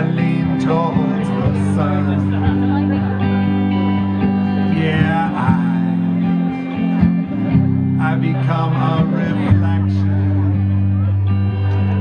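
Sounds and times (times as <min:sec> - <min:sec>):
amplified guitar: 0:00.0 - 0:12.0
low bass notes: 0:00.0 - 0:12.0.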